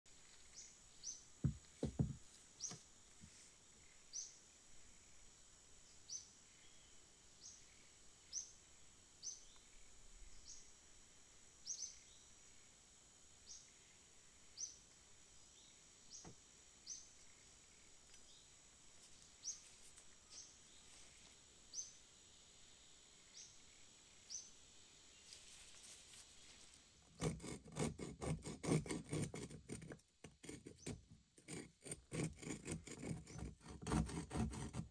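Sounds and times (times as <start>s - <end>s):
hammer head knocking on bench: 1.4s - 2.2s
chisel scraping rust off metal: 27.2s - 34.9s.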